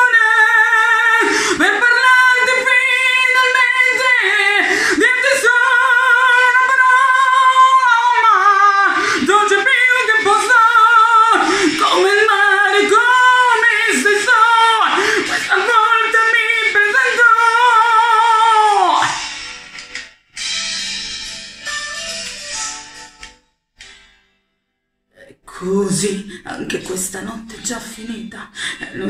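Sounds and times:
woman singing pop ballad: 0:00.0 - 0:19.2
woman breathing: 0:01.2 - 0:01.6, 0:04.6 - 0:05.0, 0:08.9 - 0:09.3, 0:11.4 - 0:11.9, 0:14.9 - 0:15.5, 0:28.5 - 0:29.0.

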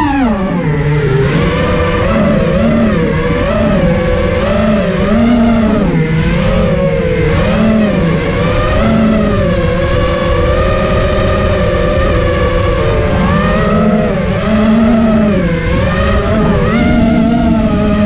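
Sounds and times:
quadcopter motors whining: 0:00.0 - 0:18.0.

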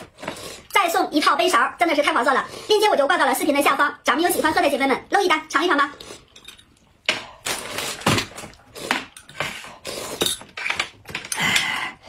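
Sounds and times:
people slurping soup: 0:08.6 - 0:12.0
cutlery and dishes clinking: 0:09.1 - 0:11.5.

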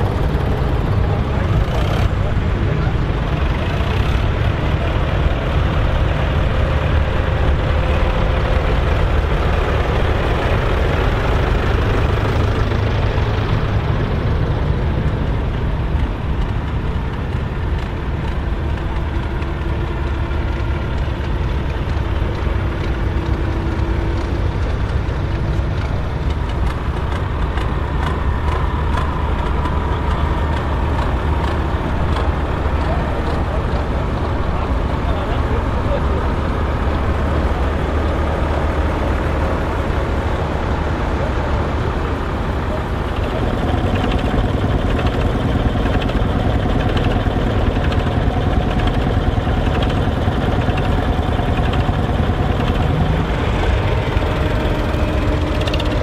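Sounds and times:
tractor engines idling: 0:00.0 - 0:56.0.

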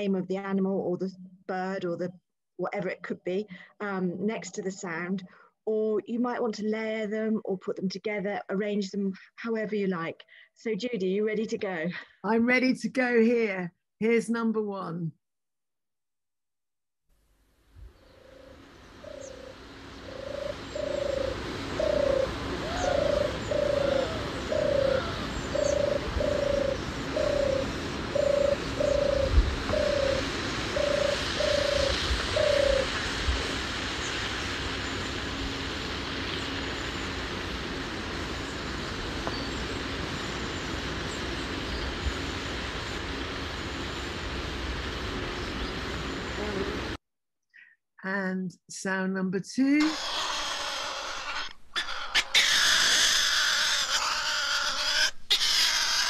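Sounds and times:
steady outdoor hiss: 0:02.6 - 0:13.6, 0:17.2 - 0:47.0, 0:48.2 - 0:56.0
faint bird chirps: 0:17.9 - 0:27.6
bird cooing: 0:18.0 - 0:33.0, 0:49.9 - 0:56.0.

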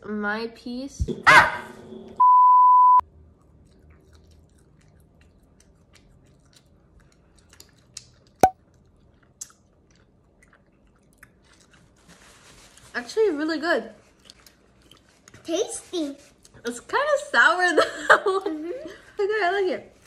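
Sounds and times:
faint chewing: 0:03.2 - 0:12.9, 0:14.0 - 0:16.8.

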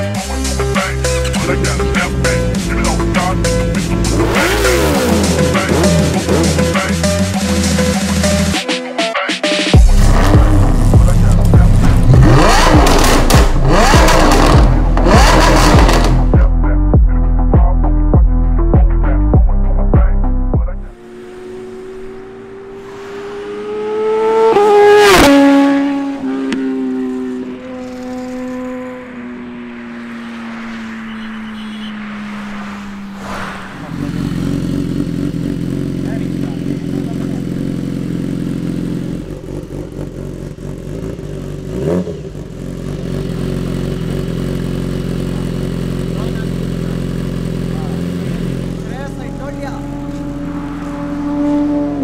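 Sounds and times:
motorcycle engine passing at speed: 0:03.4 - 0:06.8, 0:20.9 - 0:52.0
motorcycle engine idling: 0:34.4 - 0:50.0.

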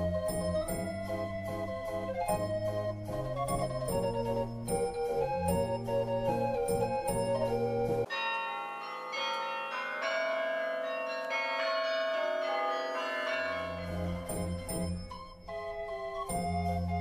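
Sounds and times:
low organ-like background music: 0:00.0 - 0:08.1, 0:13.8 - 0:17.0
ringing bell chime: 0:00.2 - 0:01.3, 0:06.7 - 0:17.0.

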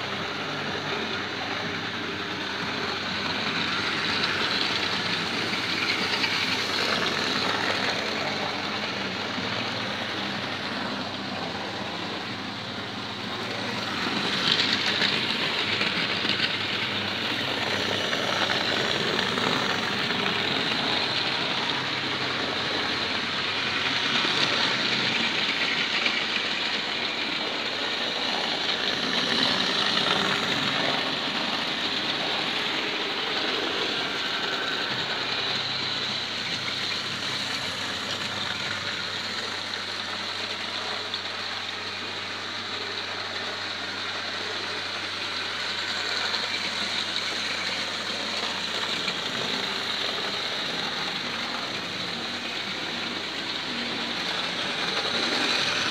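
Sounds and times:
model train motors whirring: 0:00.0 - 0:55.9.

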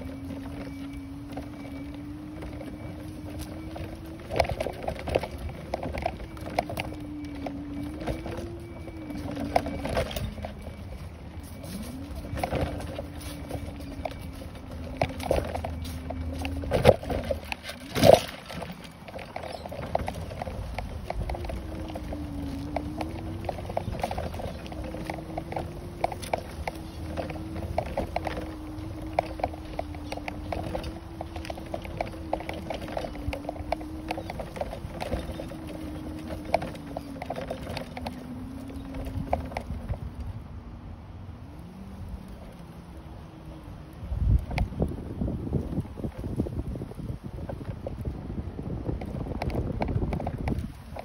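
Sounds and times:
motor humming: 0:00.0 - 0:40.4.

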